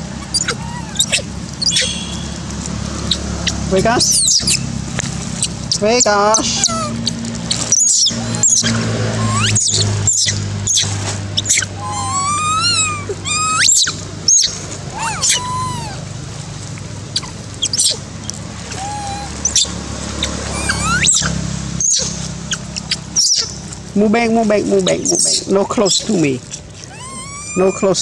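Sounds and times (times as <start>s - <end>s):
infant monkeys squeaking and cooing: 0.0s - 2.3s, 3.1s - 4.6s, 5.4s - 16.2s, 17.1s - 23.8s, 24.7s - 28.0s
steady low hum: 0.0s - 28.0s.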